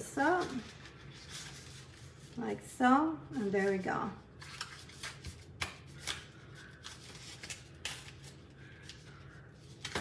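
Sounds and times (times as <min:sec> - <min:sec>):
paper rustling: 0:00.2 - 0:02.4.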